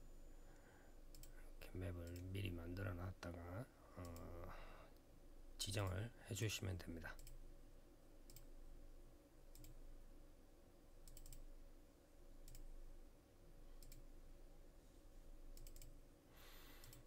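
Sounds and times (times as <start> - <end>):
quiet steady hum: 0.0 - 17.0
computer mouse clicks: 1.1 - 1.4, 2.0 - 2.3, 7.2 - 7.4, 8.3 - 8.5, 9.5 - 9.8, 11.0 - 11.5, 12.4 - 12.7, 13.8 - 14.1, 15.5 - 16.0, 16.8 - 17.0.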